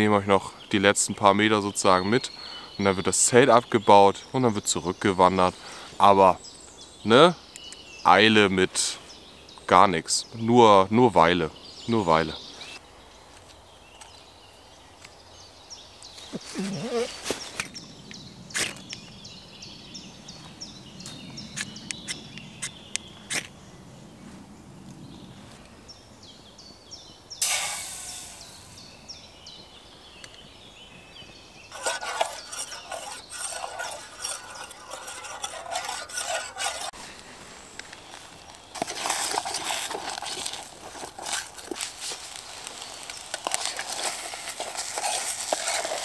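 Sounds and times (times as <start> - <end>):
birds chirping: 0.0 - 24.3, 24.9 - 46.0
sudden hiss: 27.4 - 29.0
spoon scraping steel pot: 31.7 - 37.0, 43.4 - 46.0.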